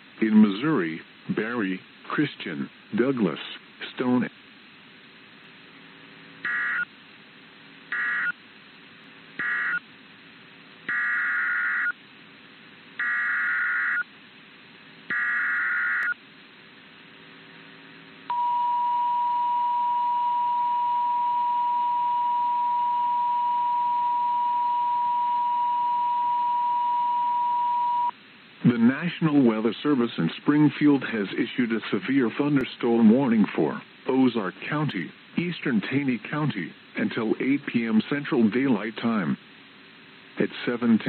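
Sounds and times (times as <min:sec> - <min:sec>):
buzzy digital data bursts: 0:06.4 - 0:06.9, 0:07.9 - 0:08.4, 0:09.4 - 0:09.8, 0:10.9 - 0:11.9, 0:13.0 - 0:14.0, 0:15.1 - 0:16.2
steady warning alarm tone: 0:06.4 - 0:06.9, 0:07.9 - 0:08.4, 0:09.4 - 0:09.8, 0:10.9 - 0:12.0, 0:13.0 - 0:14.1, 0:15.1 - 0:16.2.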